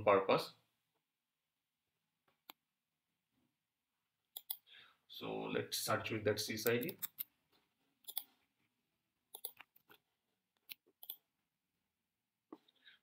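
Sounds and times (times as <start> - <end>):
keyboard and mouse clicks: 4.4 - 4.6, 8.0 - 8.3, 9.3 - 10.0, 10.6 - 11.2.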